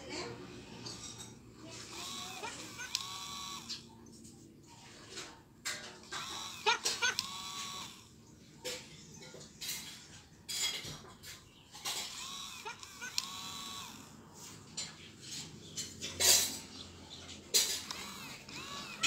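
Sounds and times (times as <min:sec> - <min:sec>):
toy dog electronic yaps: 0:01.9 - 0:03.8, 0:06.1 - 0:08.0, 0:12.2 - 0:14.0.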